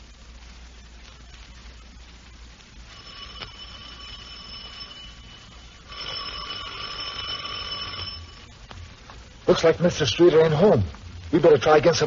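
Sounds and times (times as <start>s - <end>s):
electric doorbell ringing: 2.9s - 8.5s.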